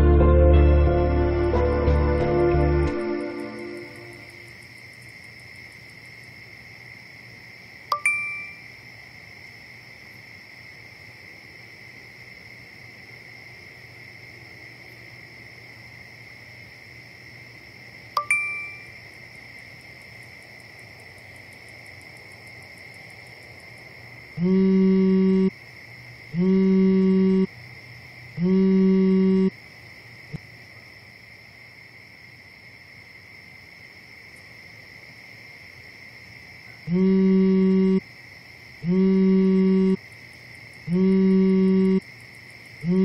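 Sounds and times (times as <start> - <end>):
crickets chirring: 1.2 - 43.0
notification ding: 7.9 - 8.6, 18.2 - 18.8
phone vibrating: 24.4 - 25.5, 26.4 - 27.5, 28.4 - 29.5, 36.9 - 38.0, 38.8 - 40.0, 40.9 - 42.0.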